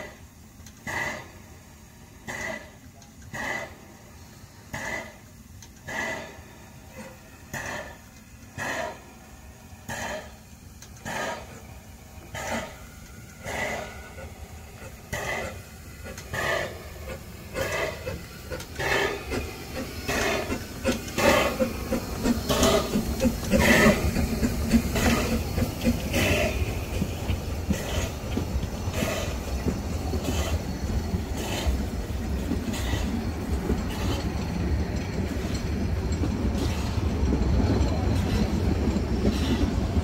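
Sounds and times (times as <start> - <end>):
steam locomotive chuffing: 0.0 - 40.0
train rumbling on rails: 0.0 - 40.0.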